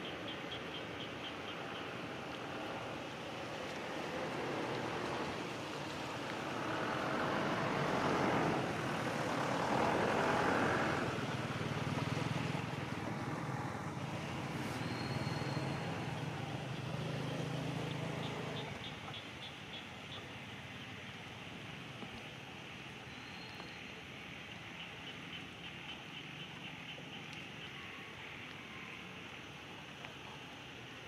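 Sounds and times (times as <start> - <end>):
low engine hum: 1.5 - 19.2
motor vehicle passing: 2.1 - 18.9.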